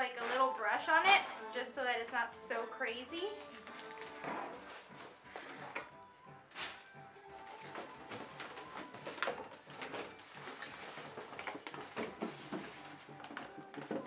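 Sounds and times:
plastic bags and wrap crinkling: 0:03.3 - 0:14.0.

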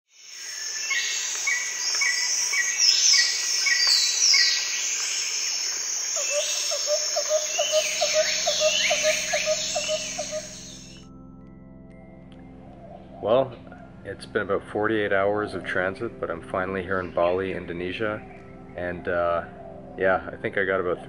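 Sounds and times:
insect hiss: 0:00.1 - 0:11.0
birds calling: 0:00.4 - 0:11.0.

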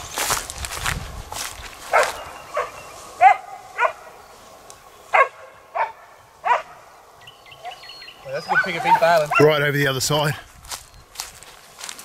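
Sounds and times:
dog barking: 0:01.9 - 0:04.2, 0:05.1 - 0:06.8, 0:08.5 - 0:09.6.

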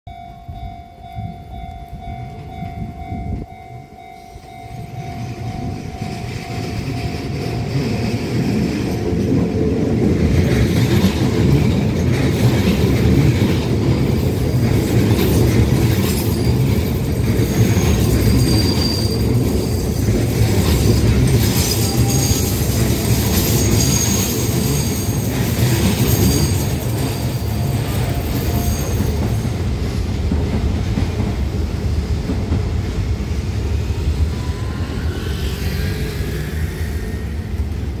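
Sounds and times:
train wheels rumbling on rails: 0:00.2 - 0:38.0
high wheel squeal: 0:17.4 - 0:29.6, 0:34.2 - 0:37.8.

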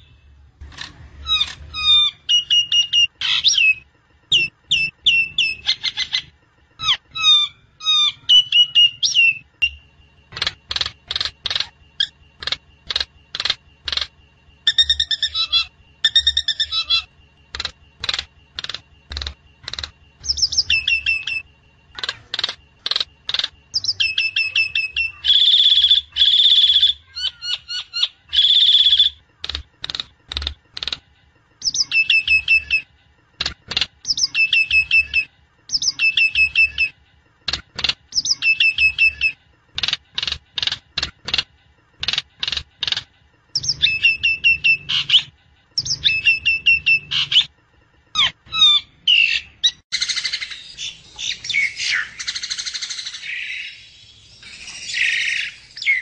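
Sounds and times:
bird chirps and clicks: 0:00.6 - 0:01.7, 0:08.3 - 0:14.1, 0:14.7 - 0:47.5
bird whistled notes: 0:48.2 - 0:56.0.

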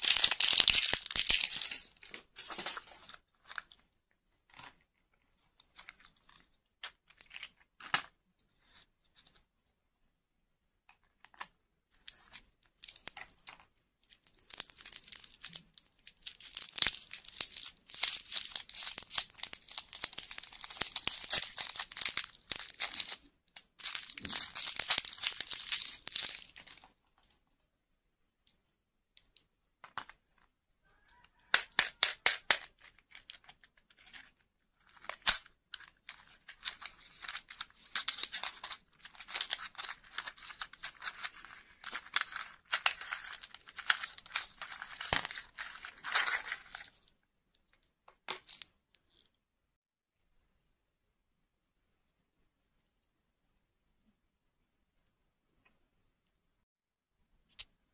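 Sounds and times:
plastic wrapper crackling and tearing: 0:00.0 - 0:07.6, 0:12.0 - 0:27.3, 0:32.4 - 0:47.1
rustling of cardboard and plastic: 0:00.0 - 0:09.7, 0:32.4 - 0:47.0.

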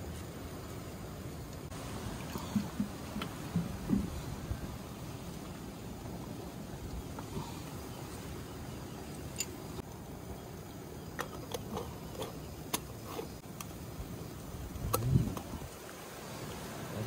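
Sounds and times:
moka pot parts clicking: 0:11.1 - 0:13.7.

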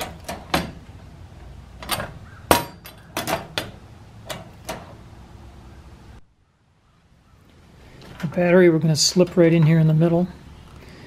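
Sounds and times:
metal trap clicking and rattling: 0:01.8 - 0:04.9.

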